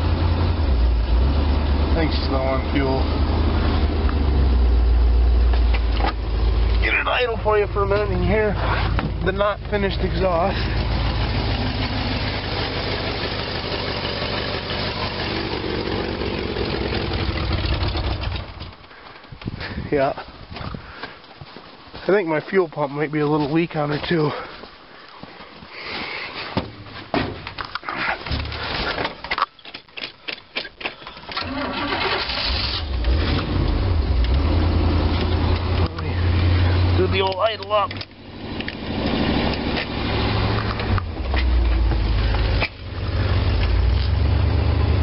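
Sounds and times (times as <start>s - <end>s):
car engine idling: 0.0s - 19.2s, 31.4s - 45.0s.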